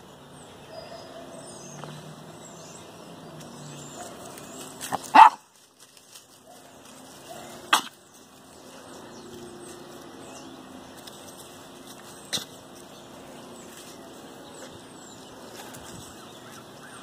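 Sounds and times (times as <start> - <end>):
puppy barking: 4.9 - 5.5.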